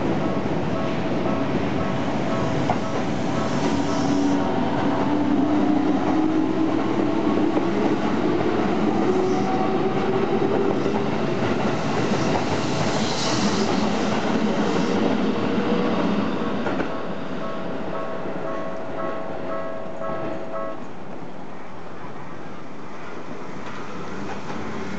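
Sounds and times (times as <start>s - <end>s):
level crossing warning bell: 17.0s - 20.9s.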